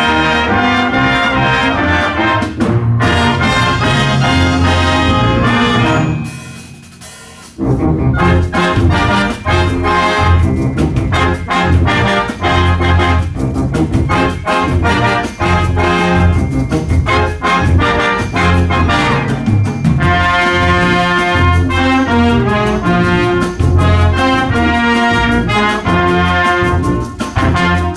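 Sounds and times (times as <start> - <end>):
concert band playing: 0.0 - 27.9.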